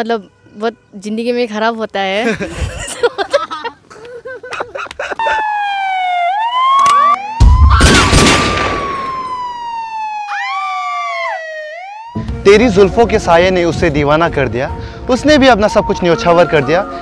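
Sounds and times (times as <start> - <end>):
wailing siren: 5.2 - 13.1, 14.6 - 17.0
loud hit: 7.4 - 9.3.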